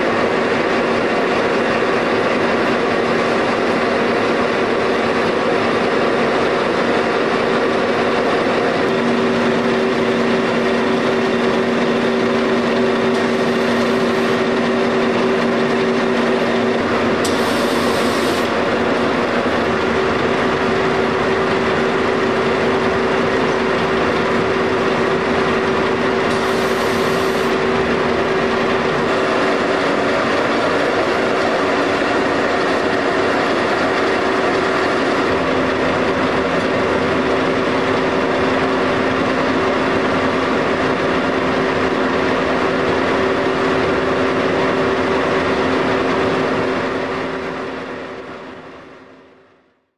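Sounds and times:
machine hum: 0:00.0 - 0:49.5.

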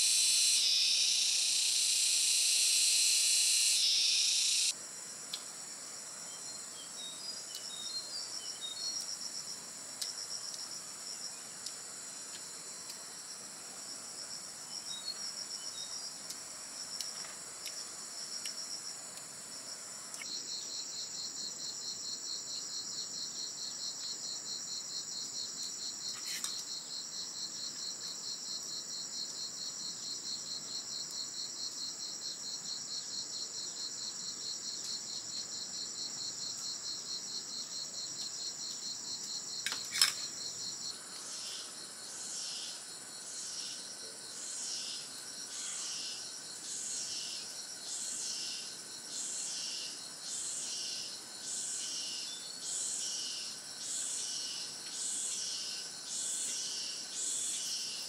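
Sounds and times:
high insect trill: 0:00.0 - 0:58.0.

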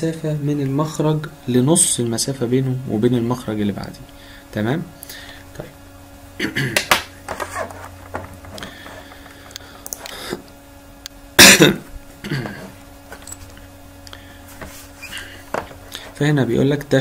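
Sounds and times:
faint steady hum: 0:00.0 - 0:17.0
man clearing his throat: 0:06.4 - 0:06.9, 0:11.4 - 0:12.8.

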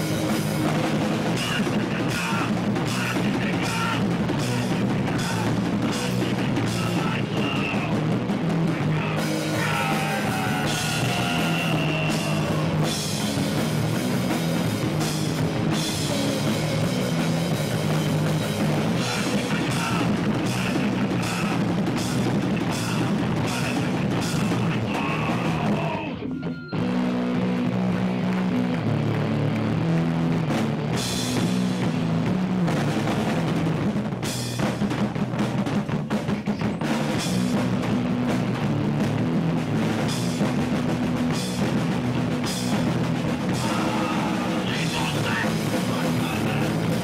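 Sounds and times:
punk band playing live: 0:00.0 - 0:47.0
vocalist shouting into microphone: 0:01.4 - 0:08.0, 0:08.7 - 0:12.9, 0:19.0 - 0:21.7, 0:22.6 - 0:26.3, 0:43.5 - 0:47.0.

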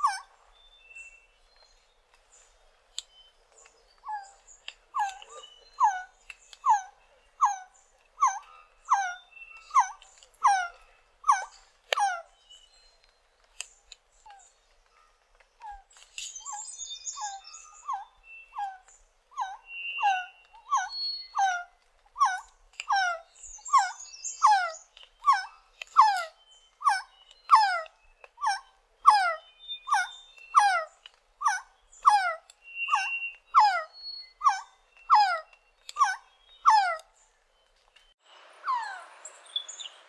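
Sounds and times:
higher bird chirps: 0:14.2 - 0:40.0
bird whistling downslurred notes: 0:32.6 - 0:36.7.

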